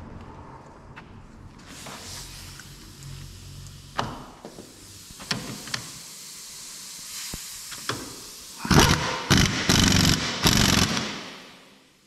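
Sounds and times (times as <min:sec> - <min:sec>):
impact wrench hammering: 0:08.7 - 0:11.4.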